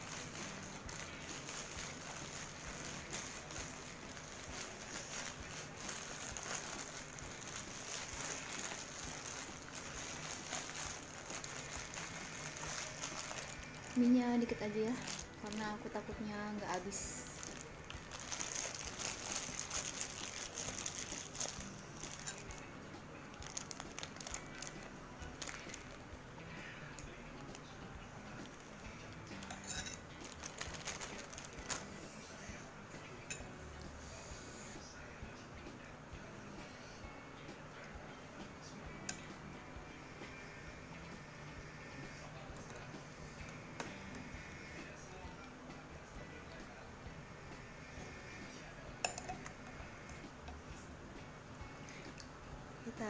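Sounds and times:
plastic bag rustling and crinkling: 0.0 - 22.6, 23.3 - 26.0, 28.3 - 32.2
chopsticks clinking against bowl: 29.4 - 30.0, 49.0 - 49.6.

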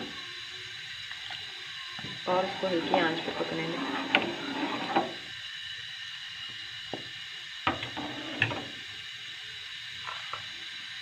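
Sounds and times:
steady hiss of cooking: 0.0 - 11.0
metal ladle scraping steel pan: 2.4 - 5.2.

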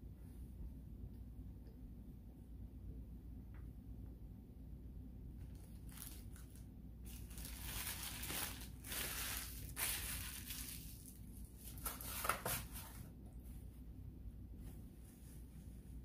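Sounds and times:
paper wrapper crinkling: 5.5 - 13.0.

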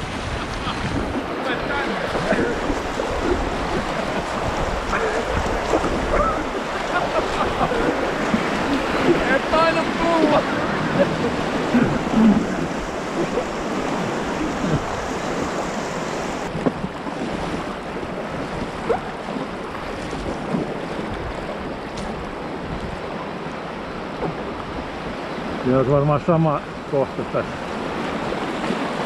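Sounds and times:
river rapids rushing: 0.0 - 19.8.

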